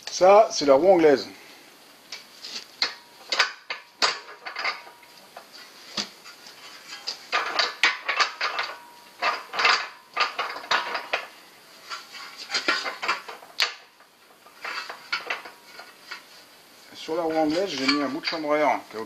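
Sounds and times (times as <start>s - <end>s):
metal parts clinking and clattering: 2.8s - 16.3s, 17.0s - 18.7s.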